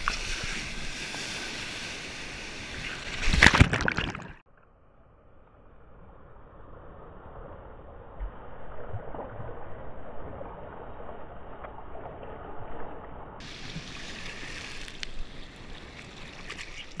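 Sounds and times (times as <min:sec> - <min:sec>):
water splashes: 0:00.0 - 0:04.4, 0:08.7 - 0:17.0
water sloshing: 0:03.1 - 0:04.4.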